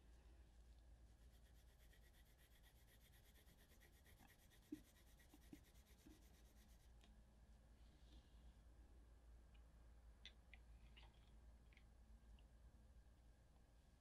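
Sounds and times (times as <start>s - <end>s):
pencil shading on paper: 1.2s - 6.9s.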